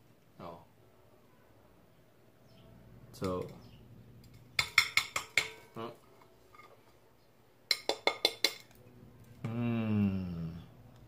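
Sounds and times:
pastry cracking on a plate: 7.7 - 8.8
man humming: 9.4 - 10.8.

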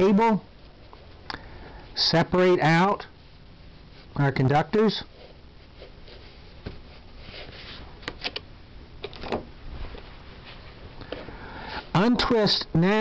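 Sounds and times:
soft rustling of cable wires: 9.6 - 12.0.

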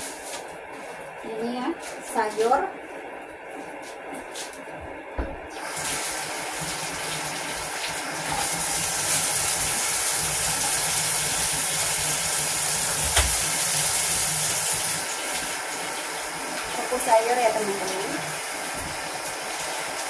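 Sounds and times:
tap water running: 5.5 - 20.0.

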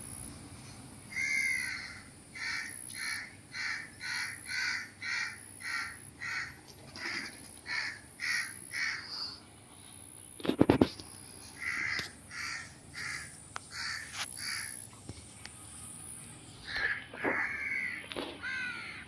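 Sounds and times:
bird calling: 1.1 - 9.4, 11.5 - 14.9, 16.6 - 19.0.

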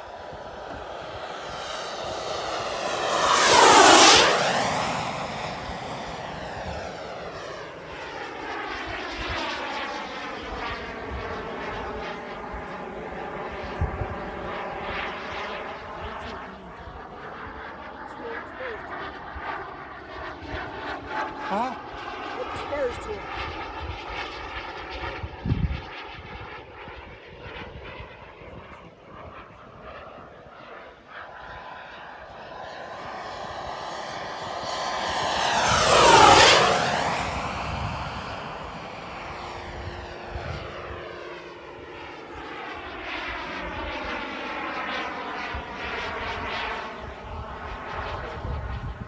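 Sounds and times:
model jet turbine fly-past: 0.0 - 49.0.

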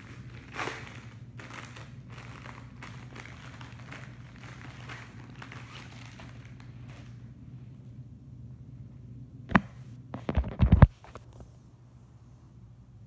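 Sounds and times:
packaging crinkling: 0.0 - 7.2
steady low hum: 0.0 - 13.0.

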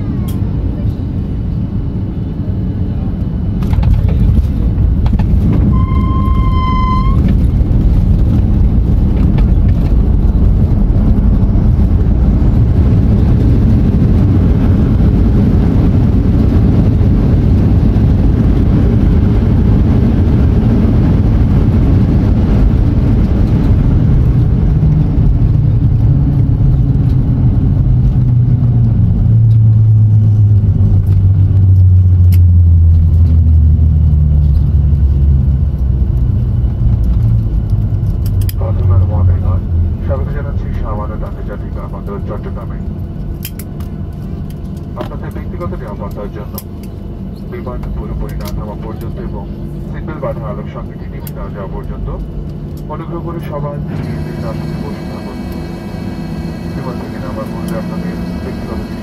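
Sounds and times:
aircraft cabin rumble: 0.0 - 59.0
low engine hum: 0.0 - 59.0
short beep: 5.6 - 7.3.

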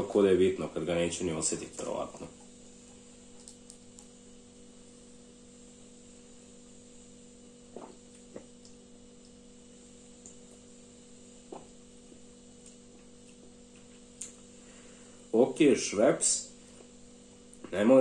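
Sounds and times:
steady electrical hum: 0.0 - 18.0
faint swallowing gulps: 7.6 - 9.3, 11.4 - 14.5.

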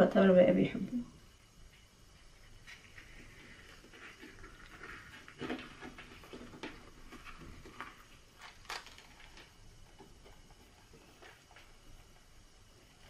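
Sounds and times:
dry wrapper crackling: 7.3 - 10.2.

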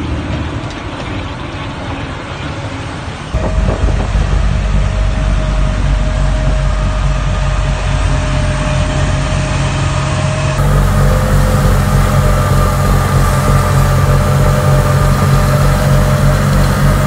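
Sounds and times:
snowblower whine: 3.4 - 17.0
tractor engine running: 3.4 - 17.0.

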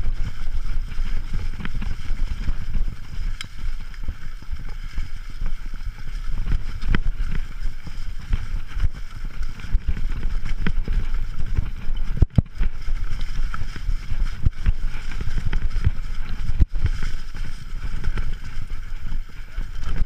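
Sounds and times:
bike rattling over rough trail: 0.0 - 20.0
wind on microphone: 0.0 - 20.0.

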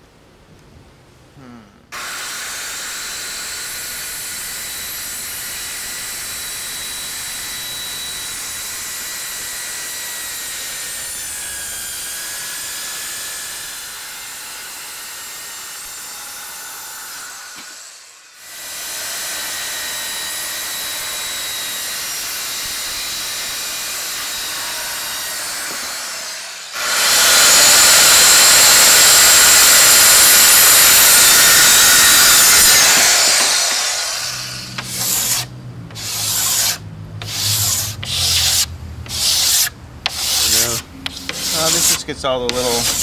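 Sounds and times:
circular saw cutting wood: 2.0 - 43.0
hand sanding wood: 25.4 - 43.0.

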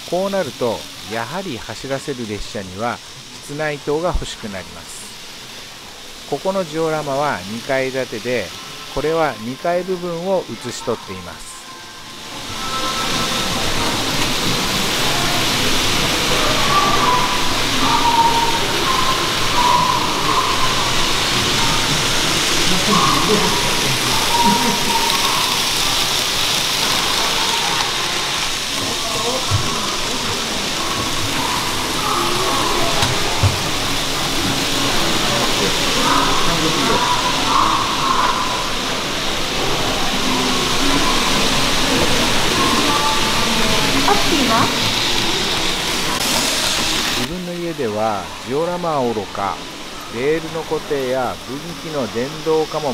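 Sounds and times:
model trains running hiss: 0.0 - 52.9
faint indistinct voices: 7.2 - 52.9
faint wavering tones: 8.4 - 47.4.

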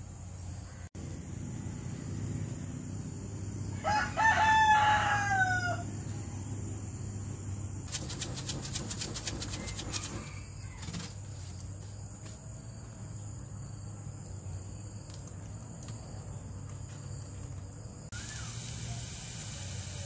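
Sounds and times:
rapid flutter of clicks: 7.9 - 10.2
wood fire crackling: 14.2 - 20.0.

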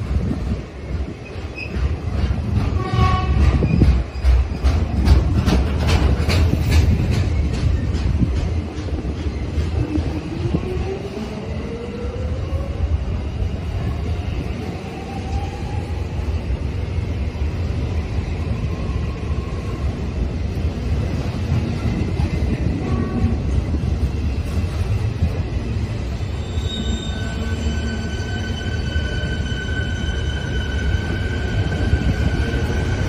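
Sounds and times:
train wheels rumbling on rails: 0.0 - 33.0
high wheel squeal: 26.2 - 32.8.

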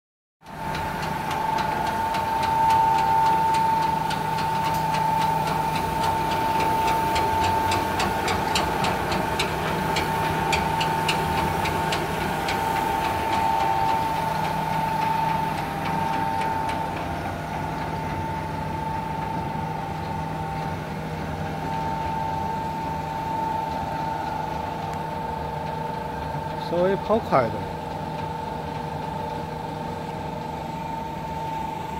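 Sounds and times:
regular mechanical ticking: 0.4 - 18.0
machine high whine and hum: 0.4 - 31.9.

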